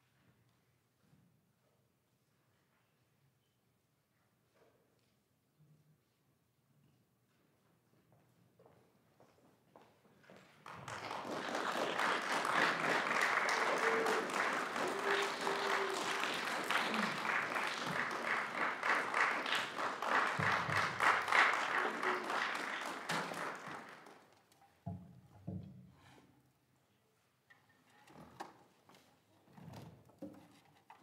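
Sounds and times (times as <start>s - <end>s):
audience applauding: 10.6s - 24.4s.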